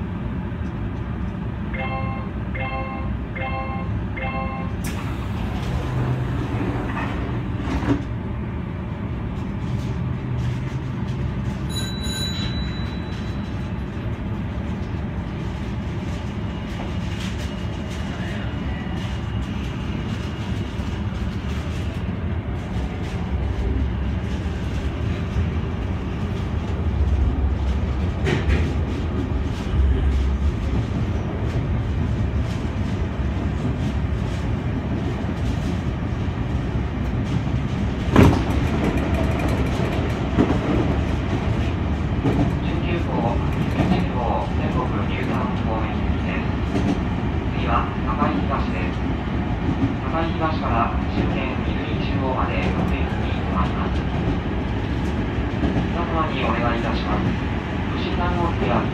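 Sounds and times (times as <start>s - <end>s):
train motors and wheels rumbling: 0.0s - 58.9s
brief high tone: 1.8s - 4.7s.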